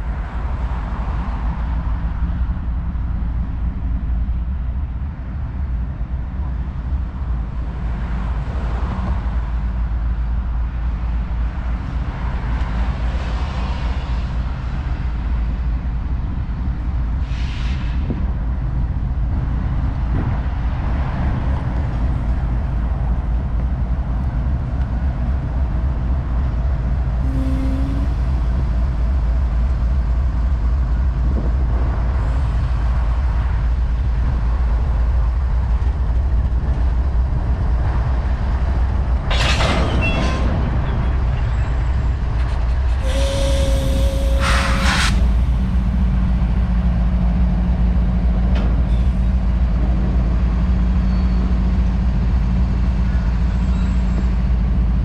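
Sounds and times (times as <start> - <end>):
locomotive engine drone: 0.0 - 55.0
air hiss: 43.0 - 45.9.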